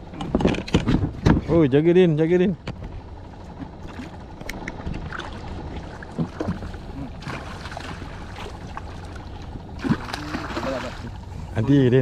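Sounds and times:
water rumbling around boat: 0.0 - 12.0
wind: 0.0 - 12.0.

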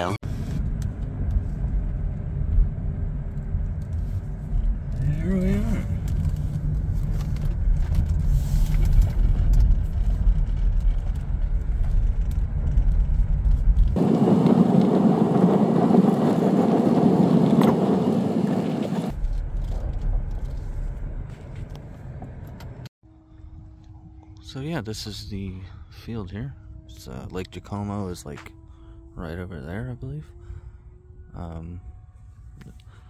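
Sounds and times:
car road noise rumble: 0.0 - 33.0.

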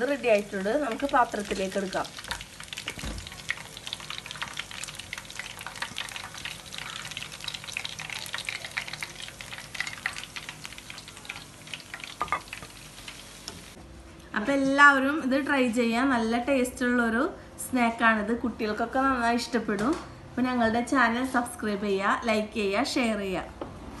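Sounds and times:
hot oil sizzling and crackling: 0.0 - 13.8.

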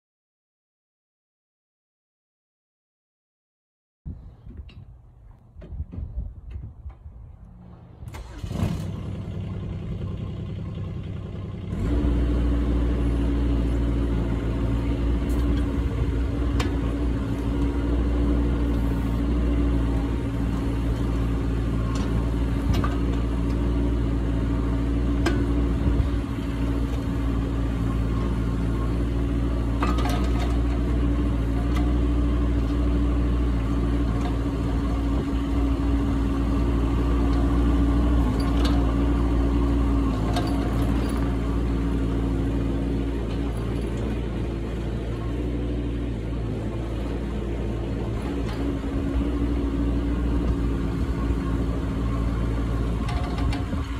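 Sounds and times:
mini excavator diesel engine: 4.1 - 53.9
excavator bucket linkage knocks: 29.8 - 30.9, 40.2 - 41.4, 53.0 - 53.9.

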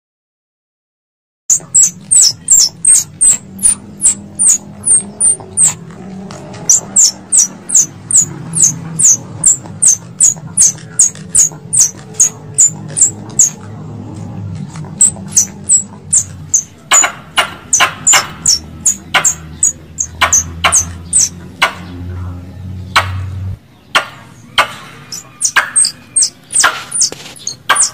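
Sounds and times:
squirrel high-pitched chips: 1.5 - 5.8, 6.6 - 13.6, 14.9 - 17.1, 17.7 - 21.4, 25.1 - 27.9
squirrel louder fuller calls: 1.5 - 5.8, 6.6 - 13.6, 15.0 - 17.1, 17.7 - 21.3, 25.0 - 27.9.

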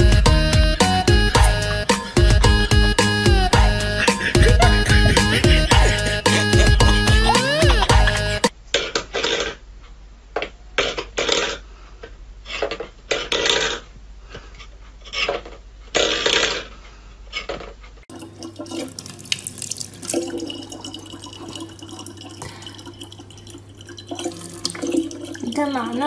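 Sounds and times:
faucet running into plastic bottle: 18.1 - 26.0.

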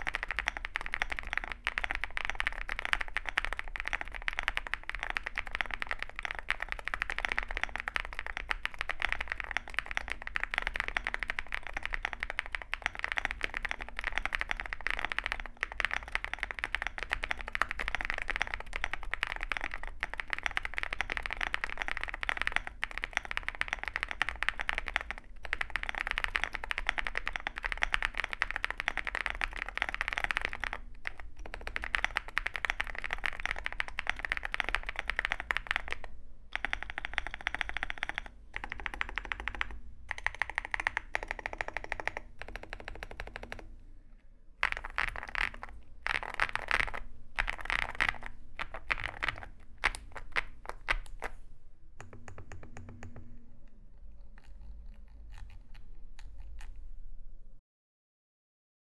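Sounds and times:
mechanical keyboard key clacks: 0.0 - 43.7.

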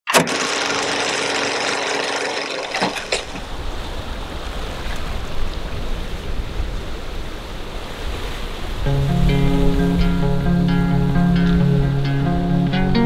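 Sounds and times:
ocean waves on a sandy beach: 2.9 - 10.6.

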